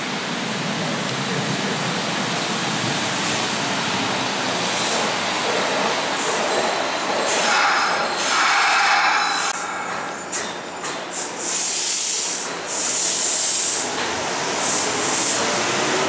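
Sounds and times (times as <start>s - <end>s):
train wheels rumbling on rail: 0.0s - 16.0s
short bursts of hiss: 11.1s - 13.9s.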